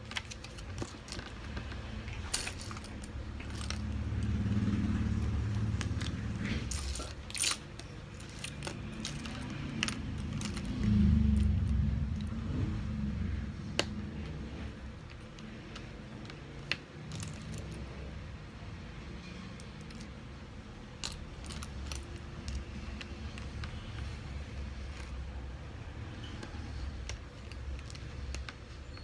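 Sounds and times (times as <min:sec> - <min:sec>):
low rumble: 0:09.8 - 0:15.0.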